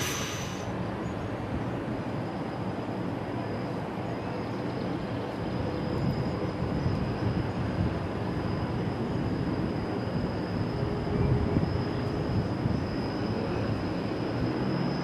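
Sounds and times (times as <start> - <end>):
thin high whine: 0.0 - 0.7
train wheels rumbling on rail: 0.0 - 15.0.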